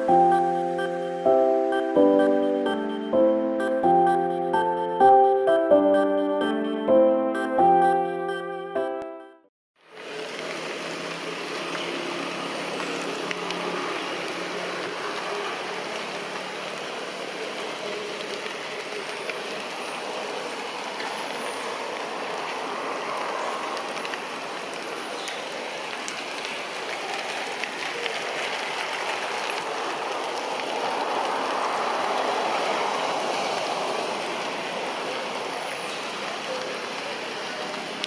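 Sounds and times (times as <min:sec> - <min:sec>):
faint high arching notes: 0:00.0 - 0:09.3.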